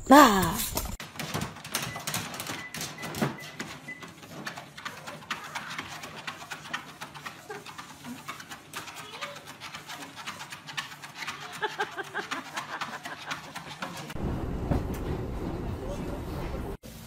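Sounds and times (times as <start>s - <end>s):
dog claws tapping on treadmill: 1.0s - 14.2s.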